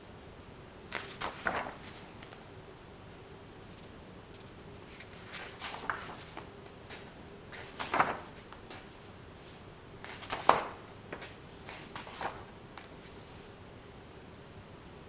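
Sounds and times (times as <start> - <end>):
book pages turning: 0.9 - 2.4, 3.7 - 13.5.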